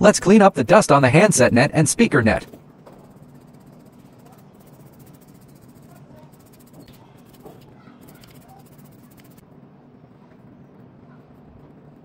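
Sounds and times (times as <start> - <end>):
small brush scratching: 2.3 - 9.4.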